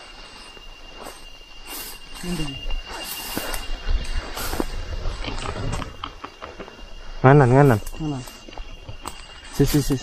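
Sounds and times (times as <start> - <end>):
high insect drone: 0.0 - 10.0
footsteps scuffing on trail: 0.5 - 5.2.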